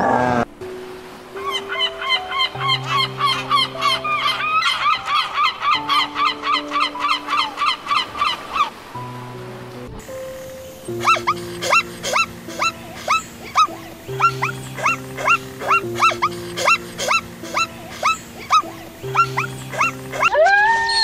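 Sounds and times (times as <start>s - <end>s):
background music: 0.0s - 21.0s
zebra yelping barks: 11.0s - 21.0s
wolf howl: 19.2s - 21.0s.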